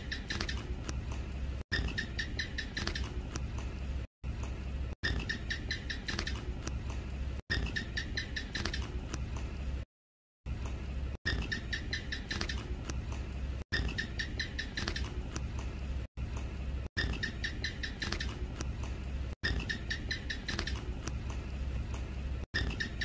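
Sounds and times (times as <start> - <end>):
gecko chirping: 0.0 - 0.9, 1.7 - 3.5, 5.0 - 6.8, 7.5 - 9.1, 11.3 - 13.0, 13.7 - 15.4, 17.0 - 18.7, 19.4 - 21.2, 22.6 - 23.0
low steady hum: 0.0 - 9.8, 10.5 - 23.0.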